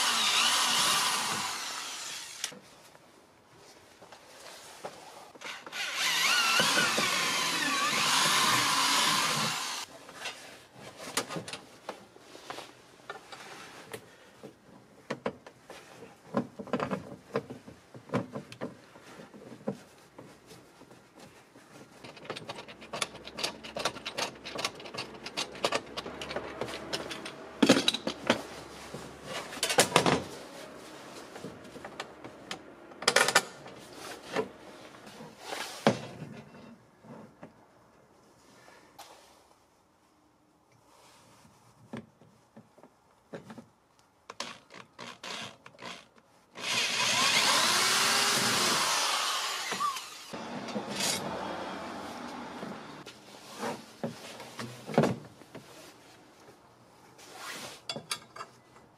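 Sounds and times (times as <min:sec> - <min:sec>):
power drill whining: 0:00.0 - 0:02.6, 0:05.5 - 0:09.9, 0:46.6 - 0:53.0
parts clicking and rattling: 0:21.8 - 0:28.5.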